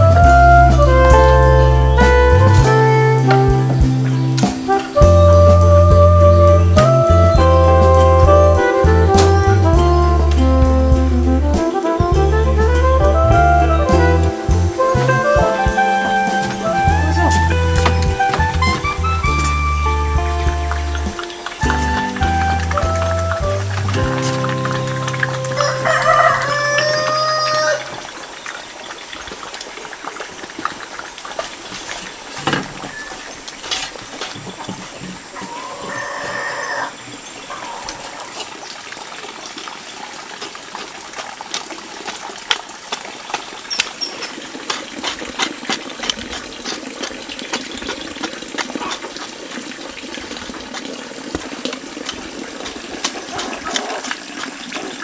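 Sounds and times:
music: 0.0 - 27.1
garden tools knocking and scraping: 16.3 - 26.2, 31.7 - 35.6, 43.7 - 49.6
chicken calling: 25.3 - 28.1, 35.4 - 38.3.

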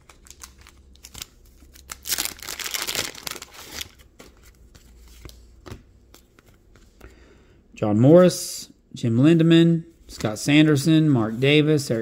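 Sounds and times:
paper wrapper tearing and crinkling: 0.0 - 4.0.

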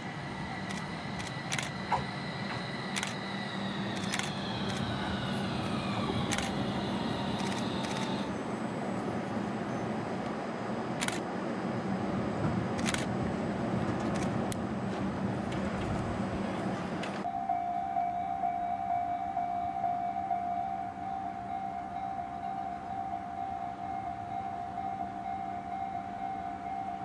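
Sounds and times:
tram motor whine falling: 0.0 - 10.4
sharp clicks: 0.6 - 1.8, 4.0 - 5.0.

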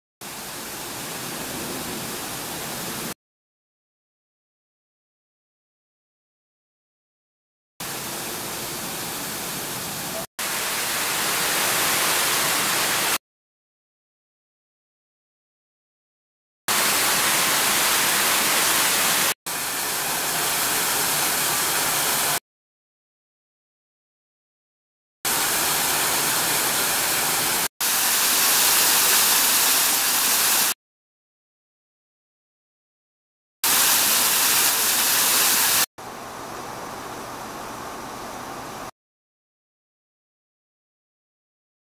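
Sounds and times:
fountain water splashing: 10.5 - 13.2, 16.7 - 22.4, 25.3 - 30.8, 33.7 - 36.6
fountain water splashing onto paving: 25.3 - 30.8, 33.7 - 35.8.

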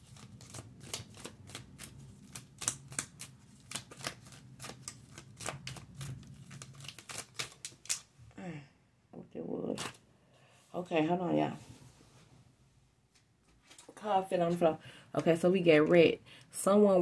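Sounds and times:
cards being shuffled: 0.0 - 8.1.

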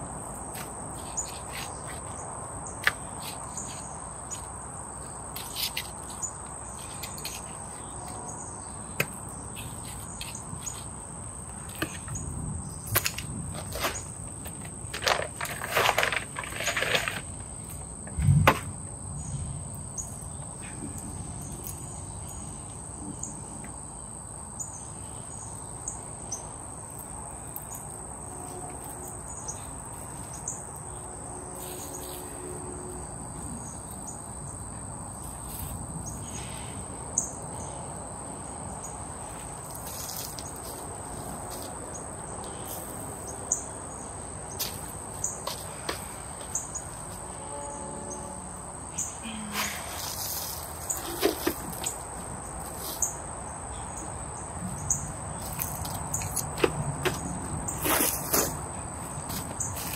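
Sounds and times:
insects trilling: 0.0 - 59.9
knocks and scrapes of soil: 0.4 - 2.2, 2.8 - 8.2, 8.9 - 18.8, 39.2 - 41.8, 49.5 - 53.2, 54.6 - 59.9.

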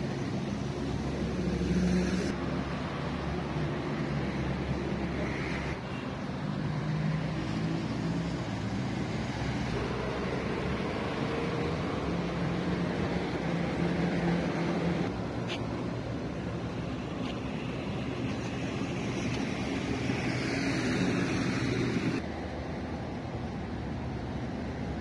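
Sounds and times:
road traffic noise: 0.0 - 25.0
vehicle engine hum: 0.0 - 25.0.

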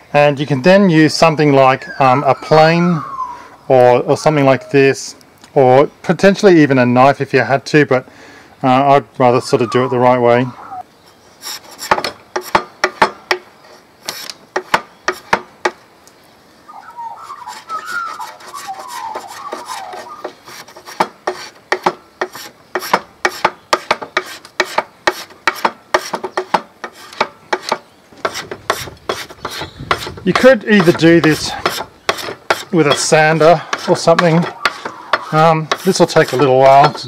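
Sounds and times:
rasp shaping wooden dowel: 11.4 - 13.4, 14.1 - 15.8, 17.4 - 37.0.

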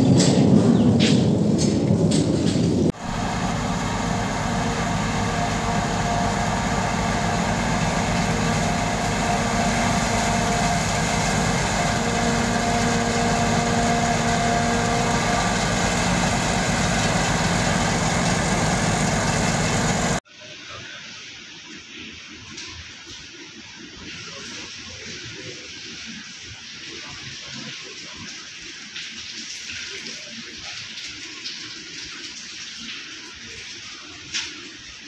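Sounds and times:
tractor running: 1.6 - 20.2
forage harvester droning: 1.9 - 20.2.

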